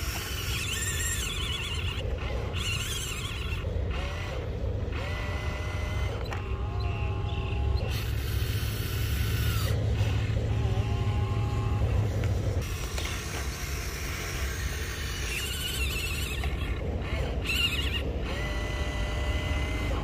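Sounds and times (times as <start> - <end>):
small electric motors whirring: 0.0 - 20.0.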